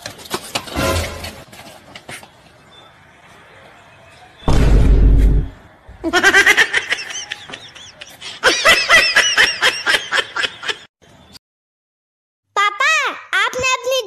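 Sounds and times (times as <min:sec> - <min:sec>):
short heavy boom: 0:04.5 - 0:05.6.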